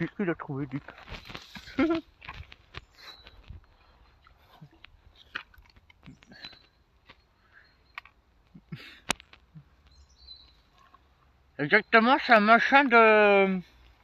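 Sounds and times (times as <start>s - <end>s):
footsteps on dirt path: 0.0s - 7.4s.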